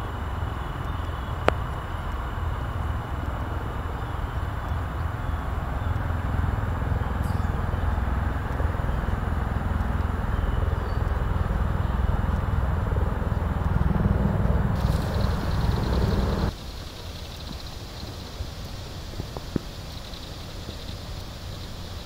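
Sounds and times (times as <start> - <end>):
low outdoor rumble: 0.0 - 22.0
hiss: 14.8 - 22.0.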